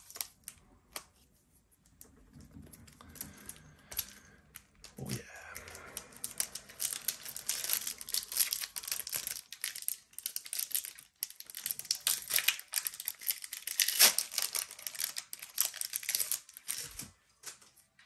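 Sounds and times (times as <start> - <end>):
foil wrapper crinkling and tearing: 0.0 - 1.1, 5.6 - 17.6.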